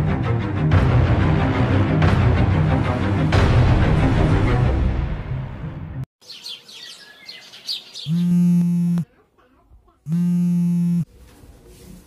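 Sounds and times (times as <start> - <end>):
birds chirping: 6.2 - 9.1
phone ringing tone: 8.1 - 9.0, 10.1 - 11.1.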